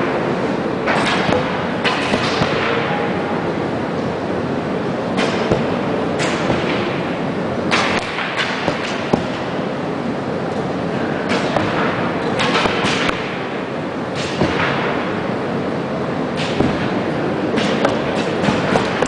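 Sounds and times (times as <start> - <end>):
arrows thudding into targets: 0.9 - 2.8, 5.2 - 7.0, 7.7 - 9.5.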